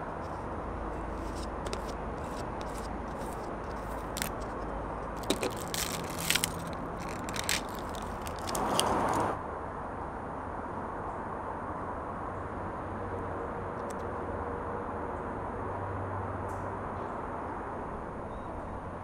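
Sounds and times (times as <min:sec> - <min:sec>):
plastic jar cap clicking: 0:01.2 - 0:04.6.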